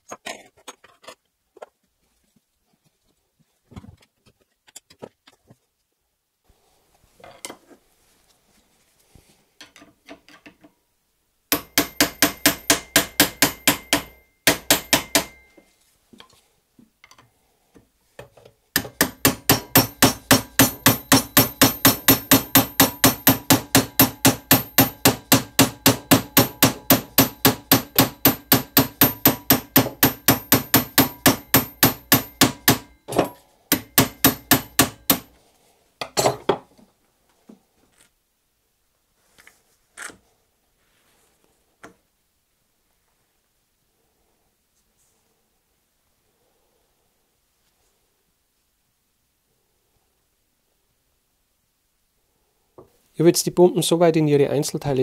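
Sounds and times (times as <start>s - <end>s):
impact driver hammering screws: 11.5s - 15.5s, 18.8s - 35.3s.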